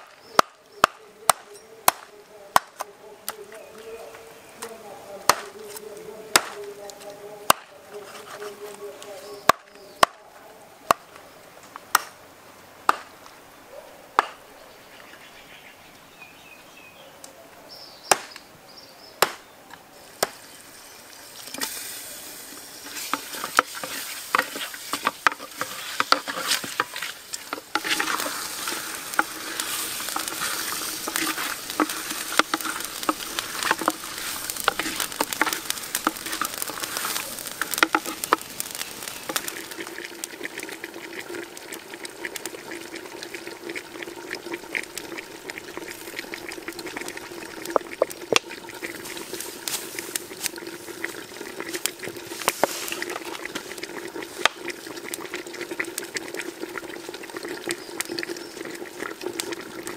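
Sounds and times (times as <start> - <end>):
meat sizzling in a clay pot: 0.0 - 10.2, 20.0 - 59.9
stirring clicks: 22.8 - 55.4.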